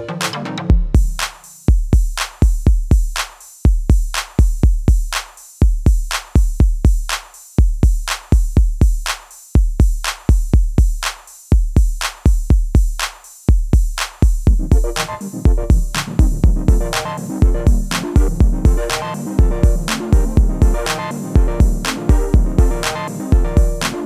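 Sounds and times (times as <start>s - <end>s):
electronic music with drum machine: 0.0s - 24.0s.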